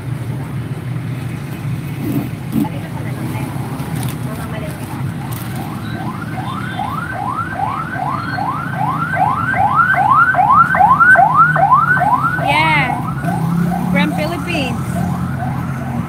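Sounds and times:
traffic rumble: 0.0 - 16.0
siren whooping: 5.0 - 16.0.

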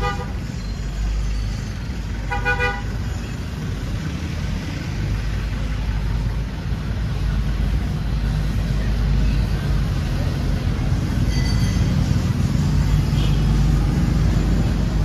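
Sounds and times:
vehicle horn beep: 0.0 - 0.4, 2.3 - 3.0
street traffic rumble: 0.0 - 15.0.

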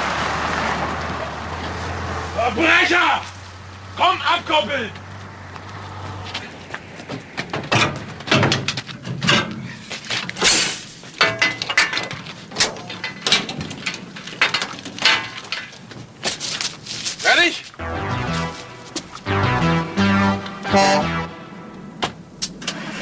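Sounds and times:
man clambering over metal: 6.4 - 16.5.

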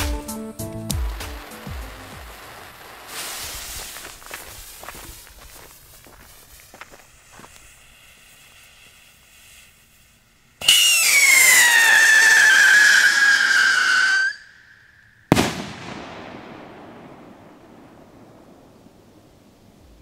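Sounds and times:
fuse hissing and crackling: 0.0 - 11.6
rocket launch whistle: 10.6 - 16.1.

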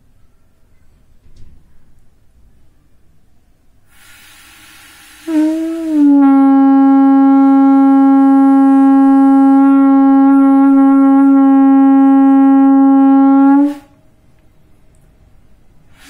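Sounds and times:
conch shell blast: 4.0 - 14.0.

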